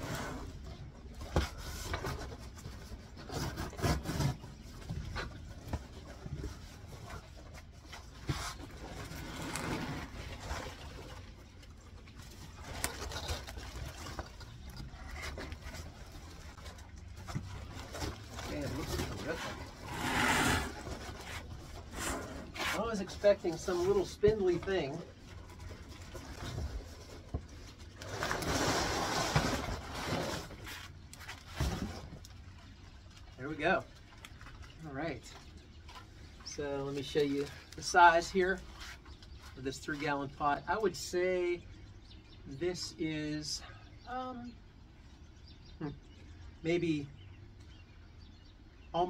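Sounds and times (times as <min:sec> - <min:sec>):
cardboard and plastic rustling: 0:25.6 - 0:32.5.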